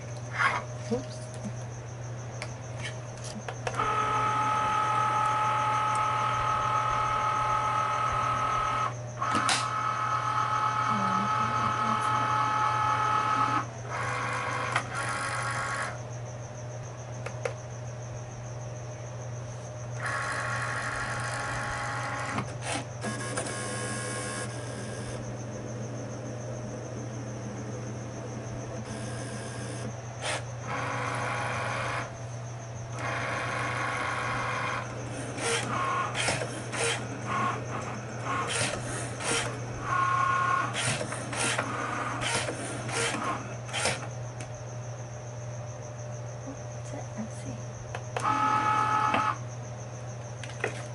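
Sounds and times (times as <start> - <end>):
steady low hum: 0.0 - 50.9
clicks and short whirs: 2.4 - 10.8, 11.7 - 16.0, 20.0 - 25.4, 28.6 - 32.2, 32.9 - 44.5, 47.9 - 49.4
cutting machine motors whining: 2.8 - 16.0, 19.9 - 32.2, 32.8 - 44.6, 47.9 - 49.5.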